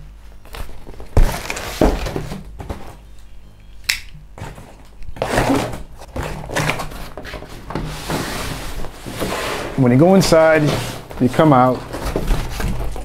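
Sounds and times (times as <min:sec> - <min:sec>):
cardboard scraping and rustling: 0:00.5 - 0:03.0, 0:04.4 - 0:13.0.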